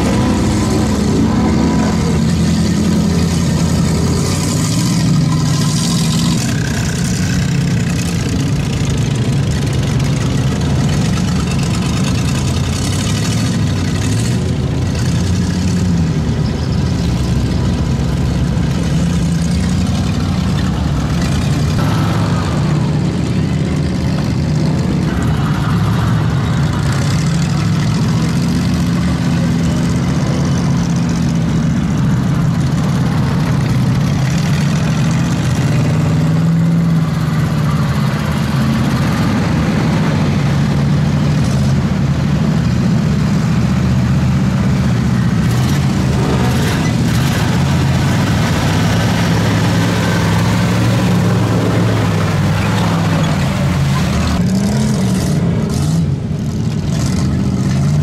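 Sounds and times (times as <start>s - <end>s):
vehicle engines revving: 0.0s - 58.0s
water and mud spraying: 45.8s - 54.4s.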